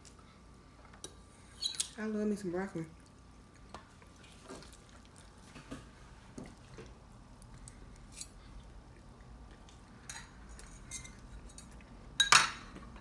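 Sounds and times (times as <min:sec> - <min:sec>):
chewing with small crunches: 0:02.9 - 0:12.1.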